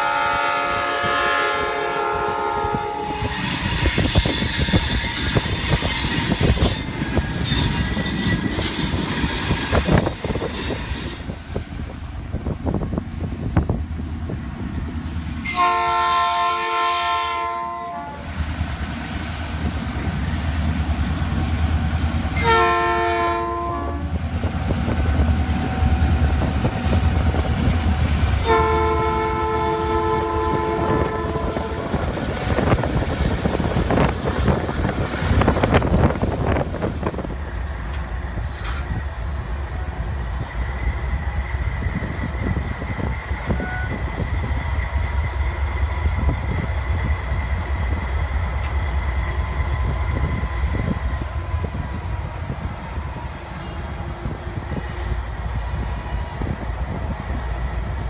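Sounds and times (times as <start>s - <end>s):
locomotive horn blasts: 0.0s - 5.3s, 15.4s - 18.2s, 22.4s - 24.2s, 28.4s - 32.0s, 43.5s - 44.0s
locomotive engines rumbling: 0.0s - 58.0s.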